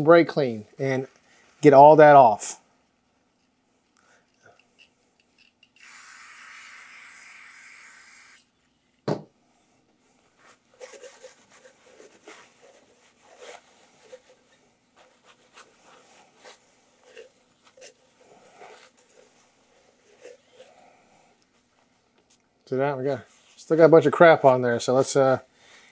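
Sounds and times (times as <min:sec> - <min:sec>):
aerosol can spraying: 0:05.8 - 0:08.5.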